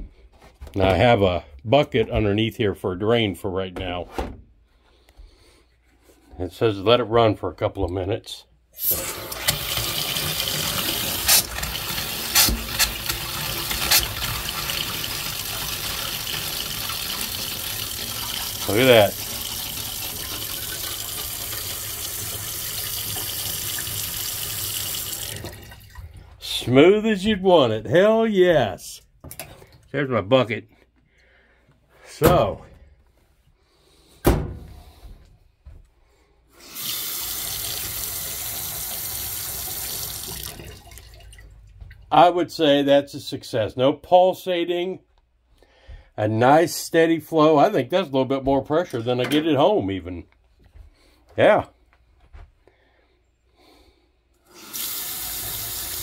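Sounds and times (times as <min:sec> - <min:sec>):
faucet water running into sink: 0:08.8 - 0:26.2, 0:36.6 - 0:41.5, 0:54.5 - 0:56.0.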